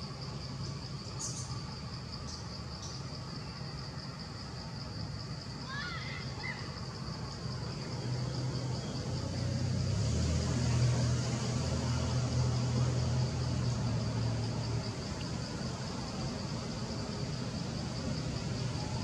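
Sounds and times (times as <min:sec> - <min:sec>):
high pulsing insect drone: 0:00.0 - 0:19.0
vehicle engine hum: 0:06.7 - 0:19.0.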